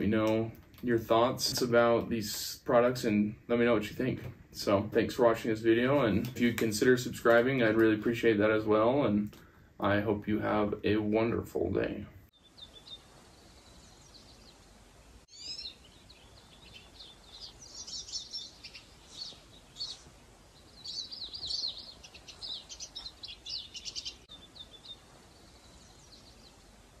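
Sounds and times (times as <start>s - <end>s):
faint steady hiss: 0.0s - 27.0s
songbirds chirping and singing: 12.3s - 27.0s.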